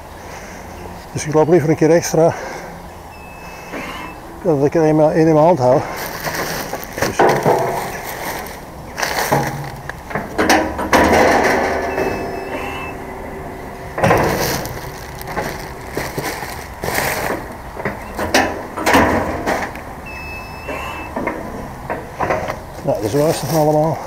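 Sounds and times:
metal drum clunking and scraping: 6.0s - 23.9s.

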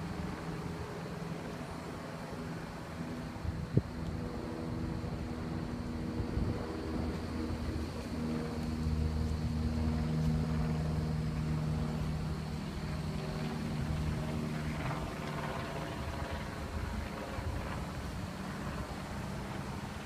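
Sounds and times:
vehicle engine humming: 0.0s - 20.0s.

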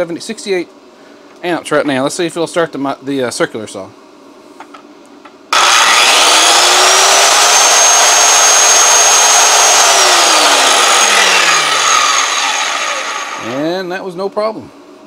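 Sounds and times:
circular saw whining: 5.5s - 13.8s.

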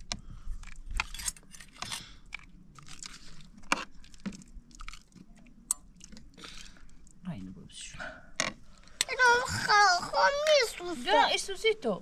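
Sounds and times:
person chewing crunchy food: 0.5s - 7.2s.

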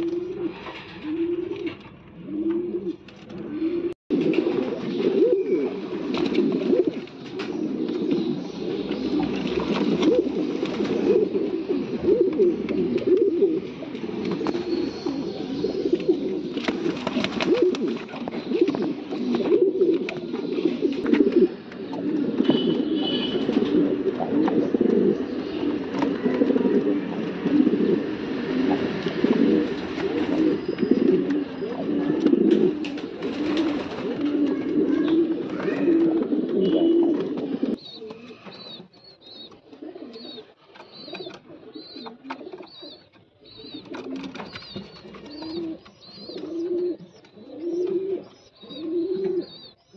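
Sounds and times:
pigeons cooing: 0.0s - 49.9s.

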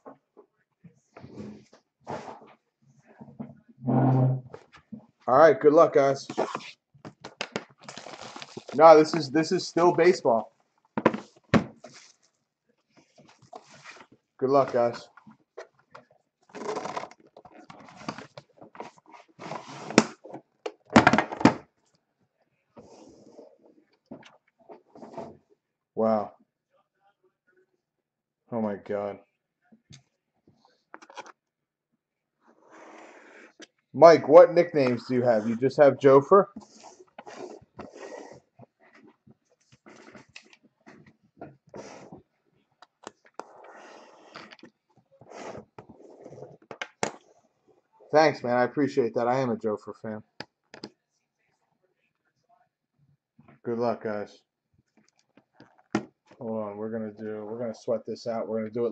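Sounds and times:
case scraping and knocking on table: 3.8s - 4.6s.

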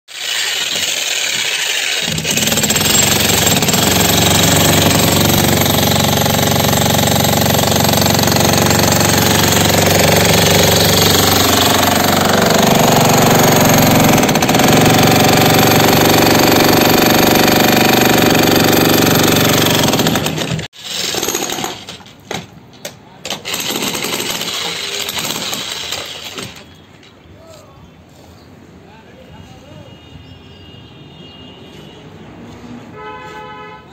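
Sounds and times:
demolition hammer chiseling concrete: 0.1s - 22.0s, 23.3s - 26.7s.

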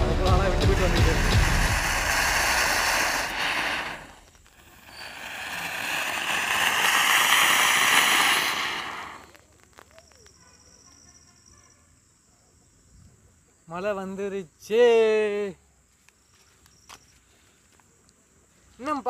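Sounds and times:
firework spraying sparks hiss: 0.0s - 9.4s
faint crackles: 0.8s - 11.2s.

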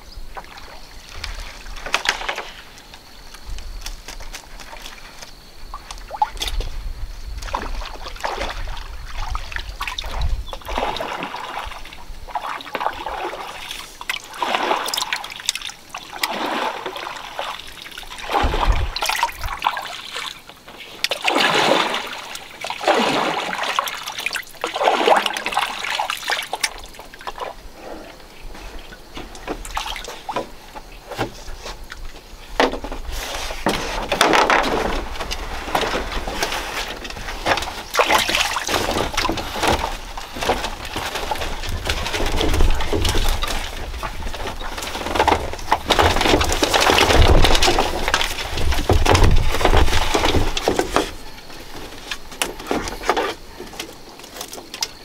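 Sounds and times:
water sloshing against bamboo raft: 0.0s - 55.0s.

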